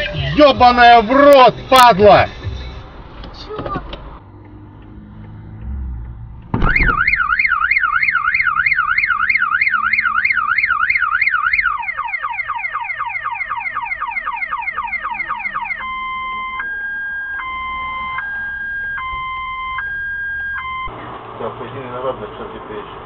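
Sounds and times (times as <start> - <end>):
car alarm siren: 6.6 - 20.9.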